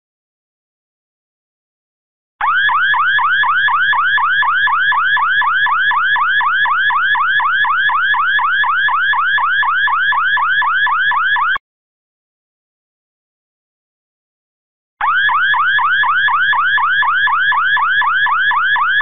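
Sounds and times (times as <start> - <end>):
car alarm siren whooping: 2.4 - 11.6, 15.0 - 19.0.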